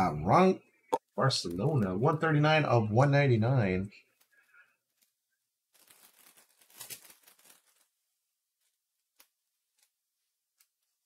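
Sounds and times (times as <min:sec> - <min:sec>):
trading cards rustling: 0:04.1 - 0:11.0.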